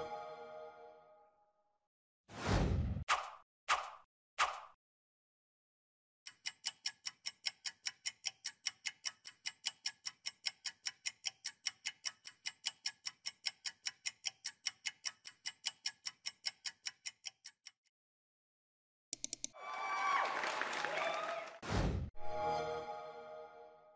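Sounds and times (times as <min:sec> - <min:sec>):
clock ticking: 0:06.3 - 0:17.9, 0:19.2 - 0:19.6.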